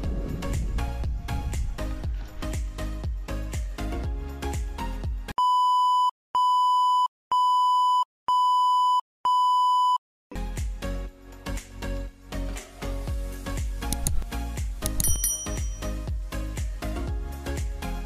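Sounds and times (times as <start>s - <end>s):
background music: 0.0s - 5.3s, 10.3s - 18.0s.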